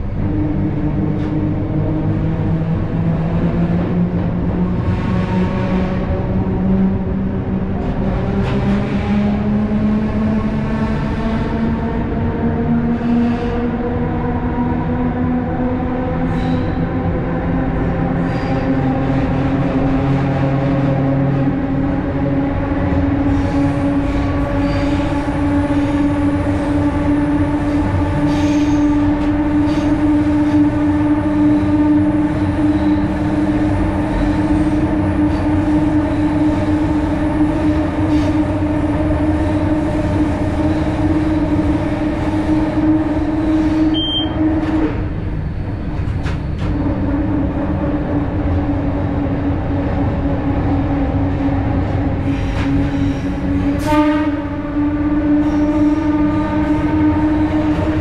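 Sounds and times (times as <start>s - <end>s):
train electrical hum: 0.0s - 58.0s
train wheels on rails: 0.0s - 58.0s.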